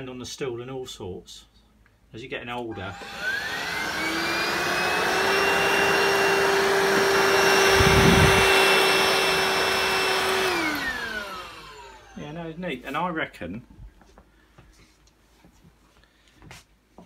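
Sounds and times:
stick vacuum motor whine: 2.7 - 12.2.

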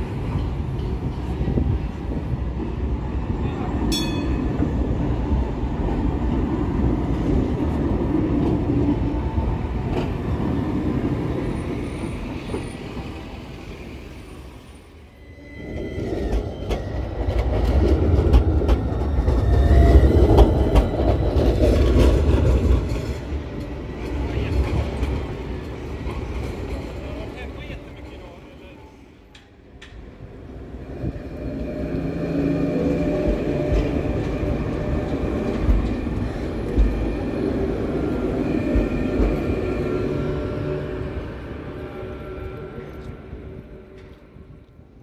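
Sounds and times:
tram rumbling over rails: 0.0 - 45.0
tram wheel squeals: 11.2 - 18.2, 18.8 - 28.4, 30.8 - 44.5.

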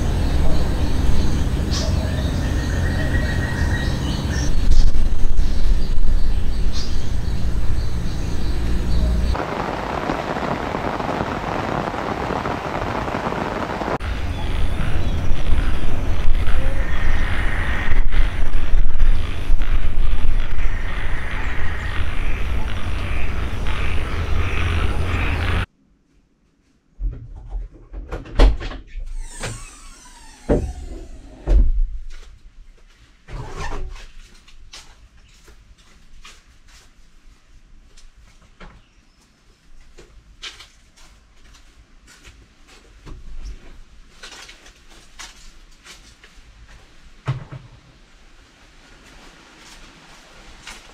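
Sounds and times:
low rumble: 0.0 - 25.7
rain falling on a garden: 9.4 - 17.0, 48.0 - 50.9.

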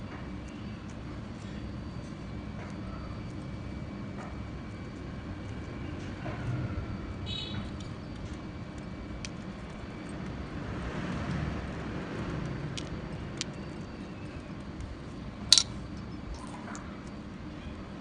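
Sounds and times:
sharp metal click: 15.5 - 15.8.

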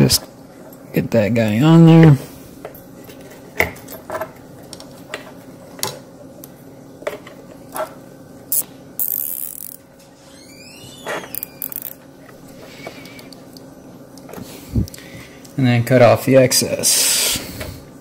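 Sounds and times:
zip tie ratcheting: 8.5 - 9.8, 11.2 - 12.0.

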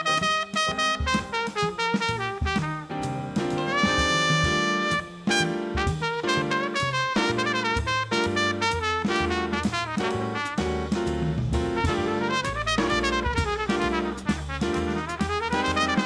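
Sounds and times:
big band swing music: 0.0 - 16.0.

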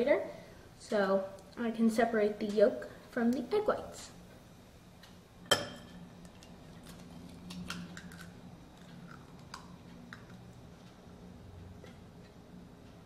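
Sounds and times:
egg cracking: 6.2 - 10.5.

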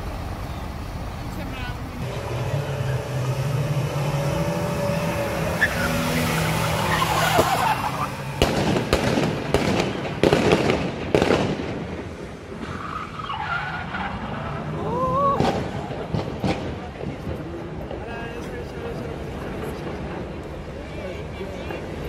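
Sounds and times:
car engines driving fast: 0.0 - 22.0
tyres squealing: 1.8 - 8.4
rapid sharp bangs: 7.1 - 12.0, 15.4 - 18.0.

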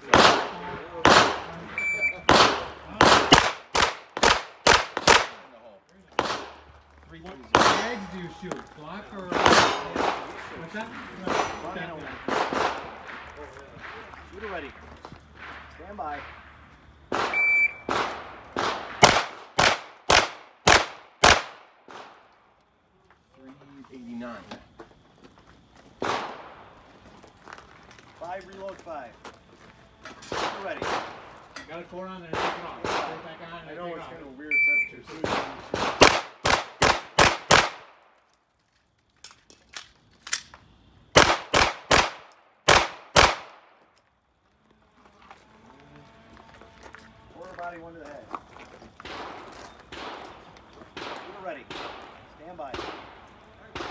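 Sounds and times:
pistol shots: 0.0 - 5.5, 6.1 - 6.7, 7.5 - 8.1, 9.3 - 10.4, 11.2 - 14.1, 17.1 - 22.2, 26.0 - 26.7, 30.3 - 31.3, 32.3 - 33.3, 35.2 - 38.0, 41.1 - 43.8, 49.0 - 53.9.

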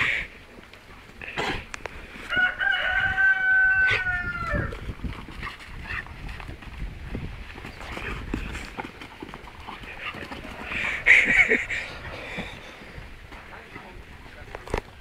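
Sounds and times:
rooster crowing: 2.3 - 4.8.

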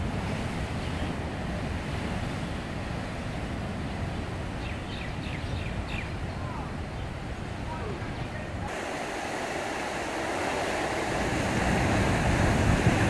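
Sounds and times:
surf breaking on rocks: 7.4 - 13.0.

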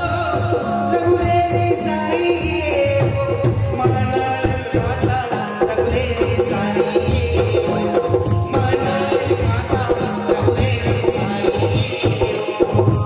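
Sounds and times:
dholak drums beating: 0.0 - 13.0
keyboard melody: 6.4 - 13.0.

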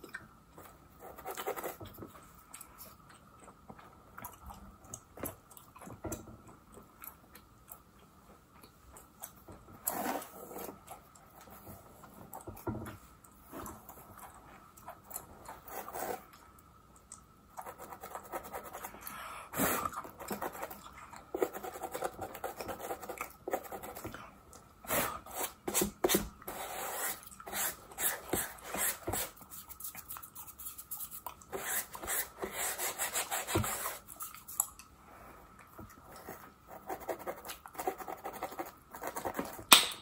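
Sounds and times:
comb scratching scalp: 26.6 - 34.6.

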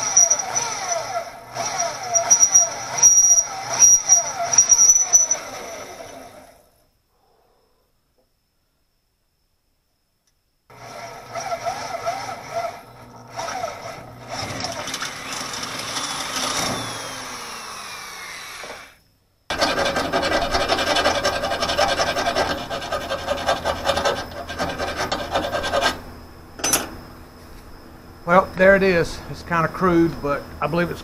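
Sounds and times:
electric drill boring through steel: 0.0 - 6.7, 10.7 - 26.0
hand file rasping on steel: 19.5 - 26.0.

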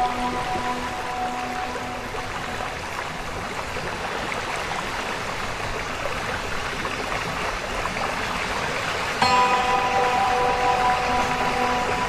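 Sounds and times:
waterfall rushing: 0.0 - 4.4, 9.2 - 12.0.

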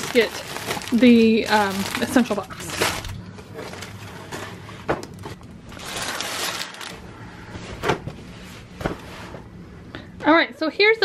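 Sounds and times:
metallic bubble mailer rustling: 0.0 - 7.1.

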